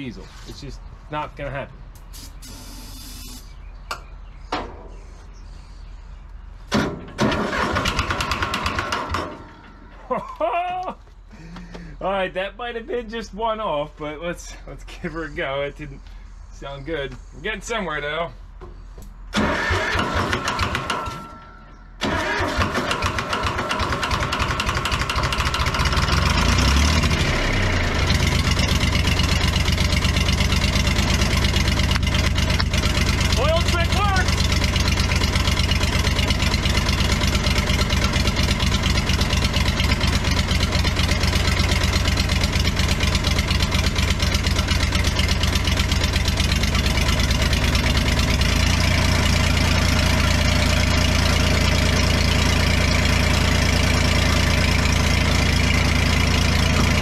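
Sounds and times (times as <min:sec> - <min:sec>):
clunk: 0:06.7 - 0:07.4
diesel engine rough firing: 0:06.7 - 0:10.0, 0:19.3 - 0:57.0.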